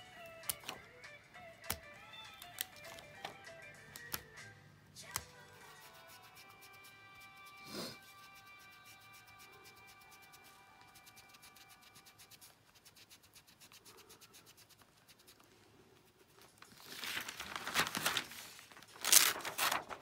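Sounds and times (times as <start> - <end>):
plastic sheet crinkling: 16.4 - 20.0.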